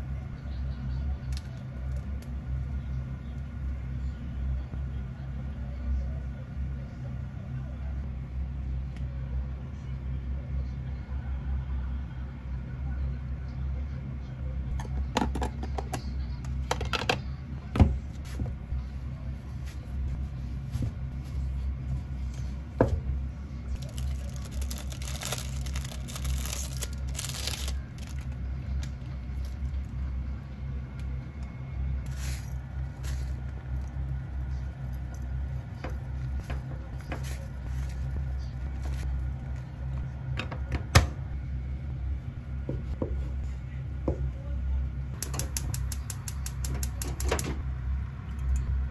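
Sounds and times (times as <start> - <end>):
steady low hum: 0.0 - 48.9
plastic bag rustling: 23.8 - 28.4.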